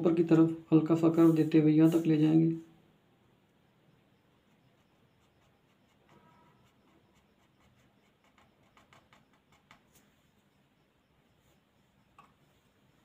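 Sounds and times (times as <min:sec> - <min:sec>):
pen nib scratching paper: 0:04.3 - 0:10.0.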